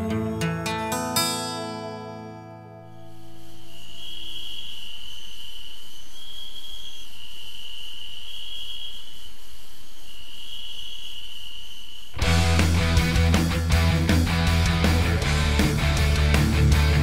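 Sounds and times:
background hiss: 2.8 - 12.2
crickets trilling: 3.0 - 12.2.

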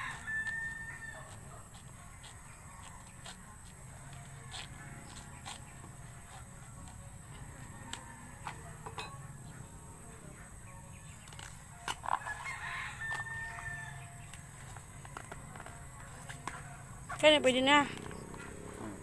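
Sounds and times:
rooster crowing: 0.0 - 1.4, 7.5 - 8.7, 12.1 - 14.2
knife cutting banana flower: 0.0 - 8.9.

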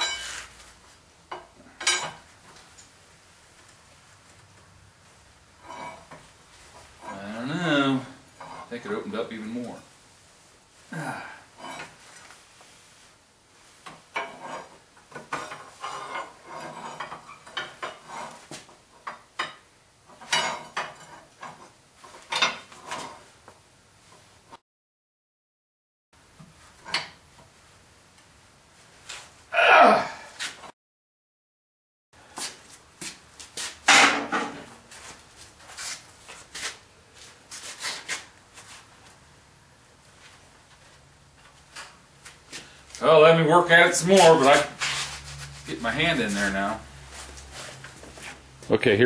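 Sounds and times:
crowbars clanking on metal: 1.3 - 2.2, 13.8 - 23.3, 33.9 - 34.7
metal grinding scrapes: 14.2 - 18.6, 43.6 - 48.4.

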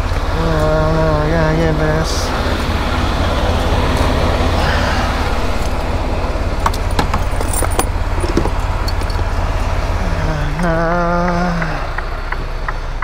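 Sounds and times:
steady pitched tone: 0.0 - 12.7
diesel engine idling: 0.0 - 13.0
metal hooks clinking and jingling: 6.7 - 9.2.

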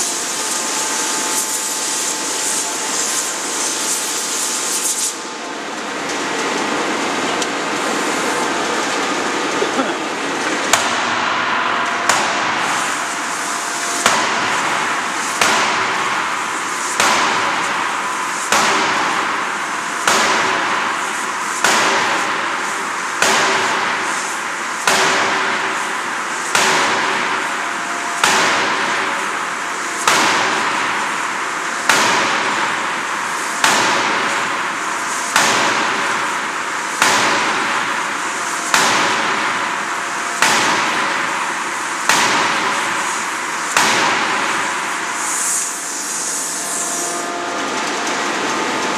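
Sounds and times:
machine hiss and hum: 0.0 - 48.9
forging hammer striking metal: 10.7 - 16.4, 17.0 - 17.6, 18.5 - 19.4, 20.0 - 21.0, 24.8 - 25.6, 26.5 - 27.4, 28.2 - 29.0, 30.0 - 31.0, 33.6 - 34.6, 37.0 - 37.8, 38.7 - 39.6, 40.4 - 41.2, 42.1 - 43.2, 43.8 - 44.8.

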